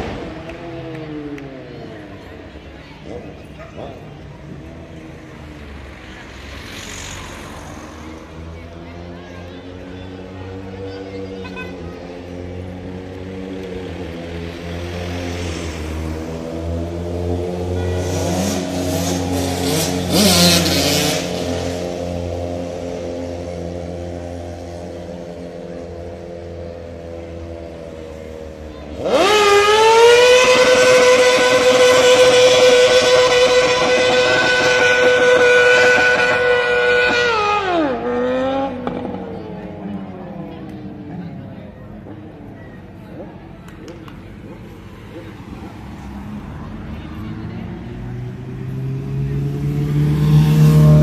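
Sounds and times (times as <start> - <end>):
vehicle engines running: 0.0 - 51.0
car engine revving high: 28.9 - 39.6, 47.7 - 51.0.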